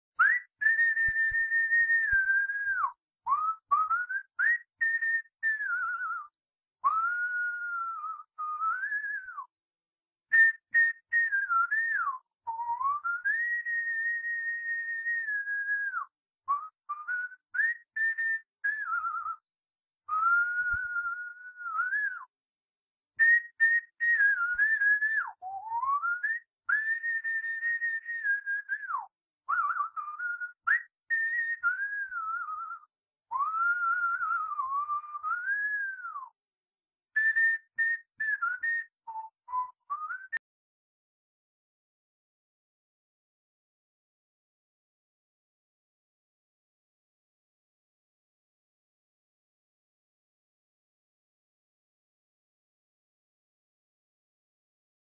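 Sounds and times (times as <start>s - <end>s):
person whistling a slow tune: 0.2s - 9.5s, 10.3s - 22.4s, 23.2s - 36.4s, 37.1s - 40.5s.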